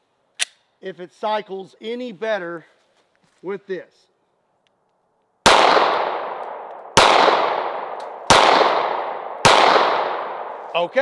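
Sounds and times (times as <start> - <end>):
pistol shots with echo: 5.4 - 10.6.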